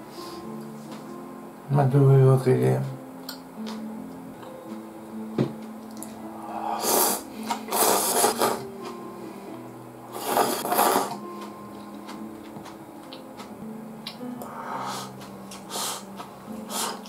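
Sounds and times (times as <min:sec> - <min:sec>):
person slurping noodles: 0:06.5 - 0:08.6, 0:10.1 - 0:11.2, 0:14.8 - 0:17.0.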